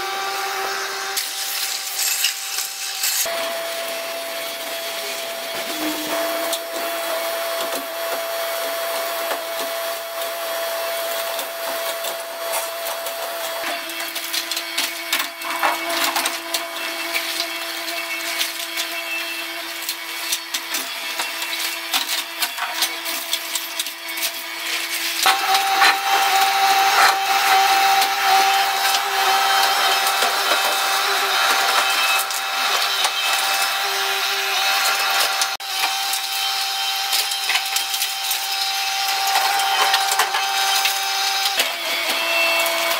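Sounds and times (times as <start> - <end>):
excavator engine and hydraulic whine: 0.0 - 8.4.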